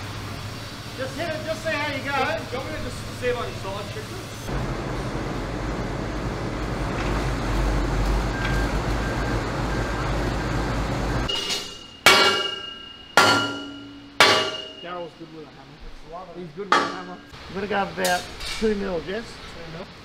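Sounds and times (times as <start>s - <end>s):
forklift engine running: 4.1s - 11.3s.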